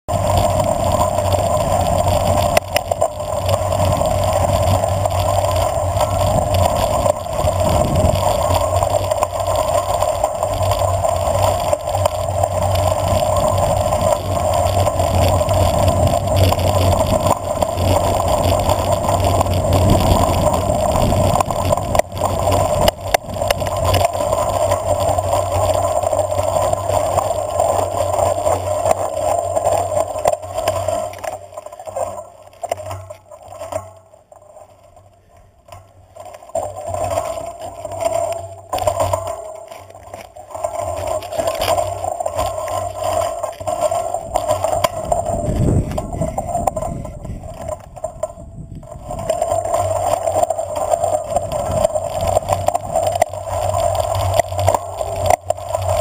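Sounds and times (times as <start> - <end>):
wind rush over camera: 0.1 - 29.0, 40.8 - 56.0
tyres rumbling on gravel: 0.1 - 56.0.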